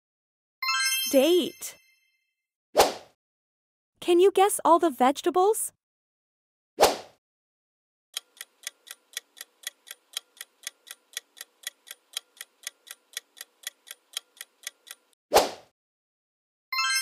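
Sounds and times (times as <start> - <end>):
clock ticking countdown: 8.2 - 15.2.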